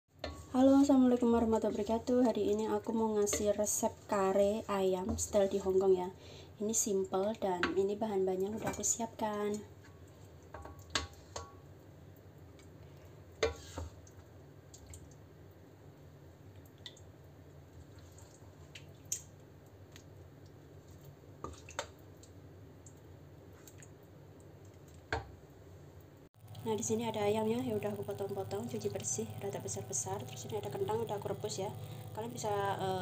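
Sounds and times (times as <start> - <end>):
wet squelches of curry: 17.7 - 25.0
low steady hum: 22.0 - 33.0.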